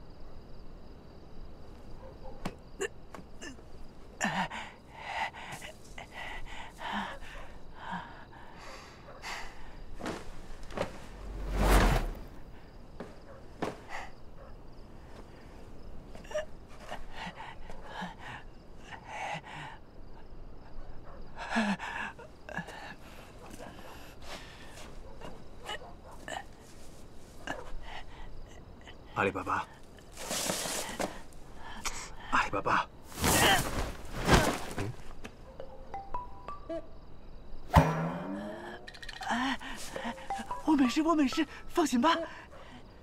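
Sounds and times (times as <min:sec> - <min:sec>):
breaths: 0:04.2 - 0:11.2, 0:12.4 - 0:14.3, 0:16.7 - 0:20.0, 0:21.3 - 0:25.0, 0:26.4 - 0:32.4, 0:38.2 - 0:40.4, 0:41.5 - 0:43.0
small rustles: 0:09.6 - 0:14.2, 0:23.4 - 0:27.8, 0:29.6 - 0:31.9, 0:33.0 - 0:35.4.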